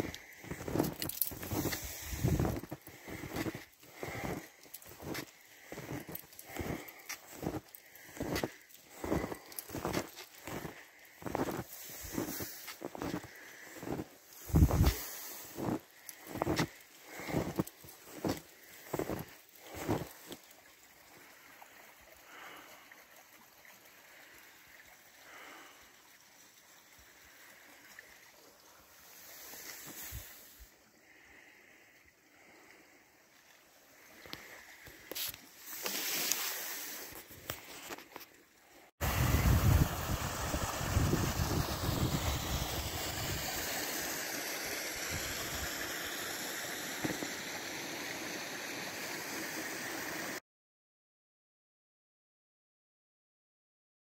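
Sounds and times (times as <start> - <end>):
stream trickling: 0.0 - 50.4
brook water rushing and gurgling: 38.8 - 50.4.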